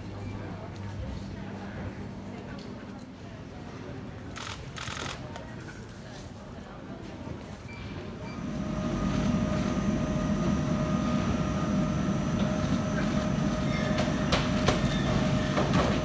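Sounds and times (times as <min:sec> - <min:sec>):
machinery rumble: 0:08.2 - 0:16.0.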